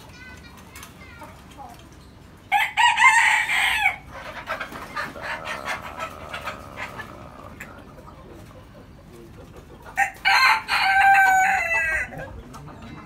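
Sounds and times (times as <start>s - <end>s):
rooster crowing: 2.5s - 4.0s, 10.0s - 12.1s.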